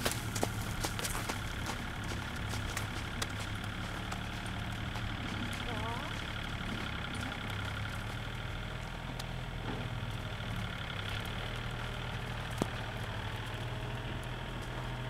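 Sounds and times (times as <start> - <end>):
engine idling hum: 0.0 - 15.0.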